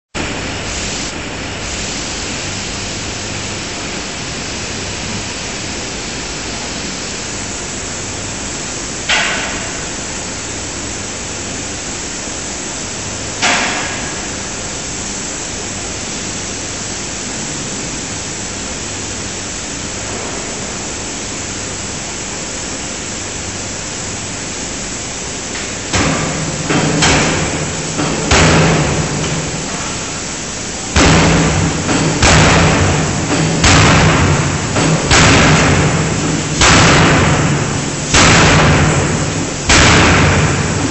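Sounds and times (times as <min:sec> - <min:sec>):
steady hum and hiss: 0:00.2 - 0:40.9
forging hammer striking steel: 0:25.9 - 0:29.3, 0:31.0 - 0:40.9.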